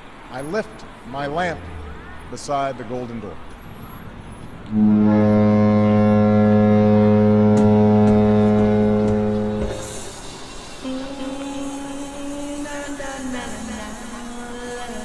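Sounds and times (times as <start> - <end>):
deep steady horn-like tone: 4.6 - 10.0
higher held tone: 4.7 - 10.0.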